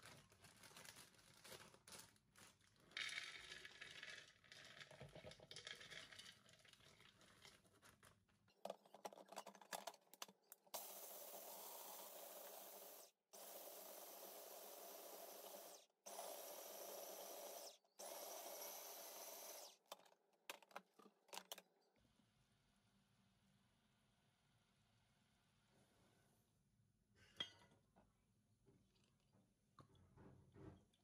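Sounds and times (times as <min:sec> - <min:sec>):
plastic bag crinkling: 0:00.0 - 0:04.0
nuts poured into a bowl: 0:02.8 - 0:08.2
food processor grinding: 0:10.8 - 0:20.0.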